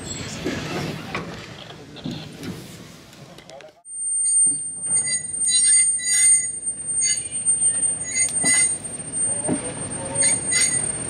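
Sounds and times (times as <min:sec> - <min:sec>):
train wheels squealing: 0:04.0 - 0:11.0
rumble of passing wagons: 0:04.6 - 0:11.0.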